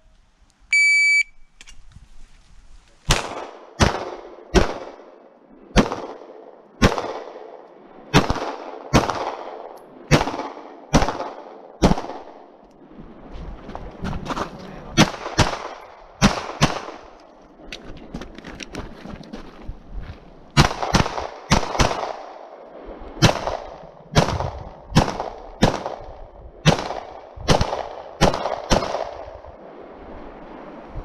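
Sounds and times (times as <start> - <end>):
shot timer beep: 0.7 - 1.4
pistol shots with echo: 5.7 - 12.4, 15.0 - 17.0, 20.6 - 22.4, 23.2 - 29.3.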